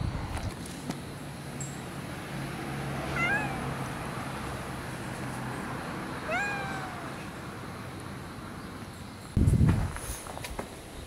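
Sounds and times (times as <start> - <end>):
cat meowing: 3.1 - 3.7, 6.2 - 7.3.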